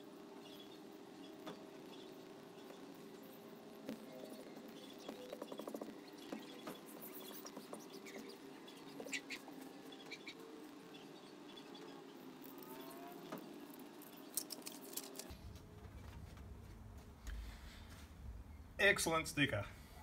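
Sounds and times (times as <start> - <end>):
quiet steady drone: 0.0 - 20.0
sticker rubbing and scraping: 4.5 - 10.1.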